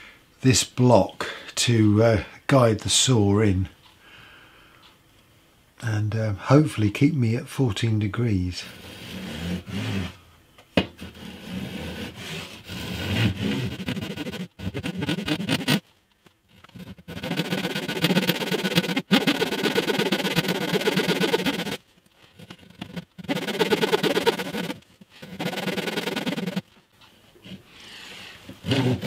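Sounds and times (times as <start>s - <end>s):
handsaw cutting wood: 8.7s - 10.2s, 11.0s - 15.8s, 16.8s - 21.8s, 22.4s - 26.6s, 28.6s - 29.0s.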